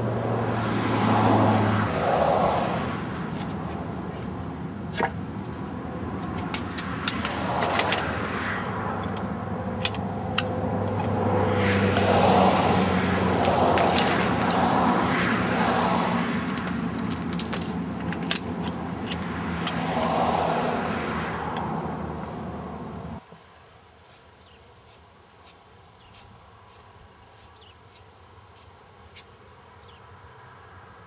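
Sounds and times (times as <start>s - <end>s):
low engine hum: 0.0s - 23.2s.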